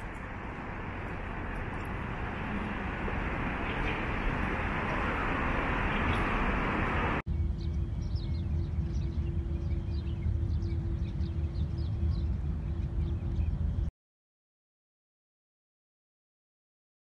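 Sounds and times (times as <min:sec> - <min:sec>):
dense street traffic noise: 0:00.0 - 0:13.9
low steady rumble: 0:00.0 - 0:13.9
small birds chirping: 0:03.5 - 0:13.9.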